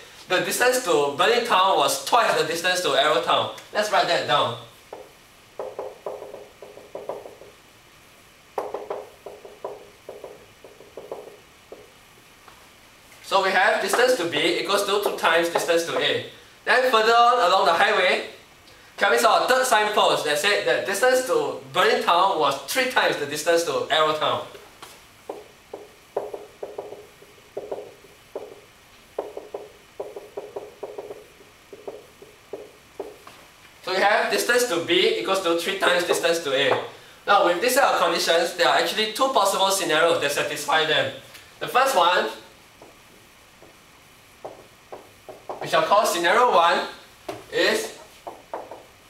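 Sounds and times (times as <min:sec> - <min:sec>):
marker writing on whiteboard: 0:04.9 - 0:07.5, 0:08.6 - 0:11.9, 0:13.8 - 0:16.2, 0:25.2 - 0:33.4, 0:35.9 - 0:36.8, 0:44.4 - 0:45.9, 0:48.0 - 0:48.9
marker scratching on whiteboard: 0:13.9 - 0:15.8, 0:25.3 - 0:28.6, 0:29.2 - 0:33.2.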